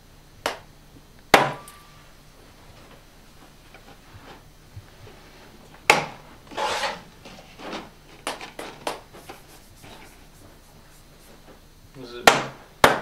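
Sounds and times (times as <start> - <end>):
rubbing and shuffling: 2.4 - 11.7.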